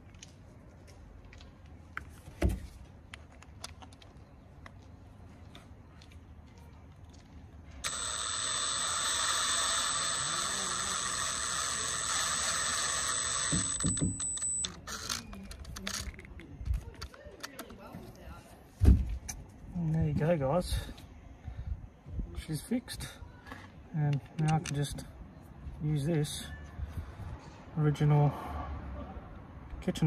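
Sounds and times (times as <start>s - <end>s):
cordless drill running: 7.8s - 14.6s.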